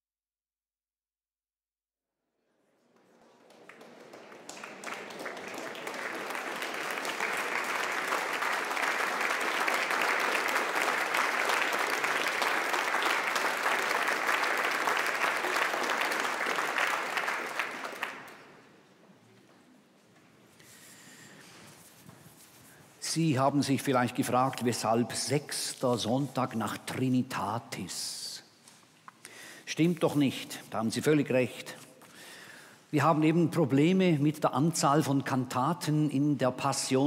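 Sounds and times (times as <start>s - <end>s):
audience applauding: 2.8s - 18.6s.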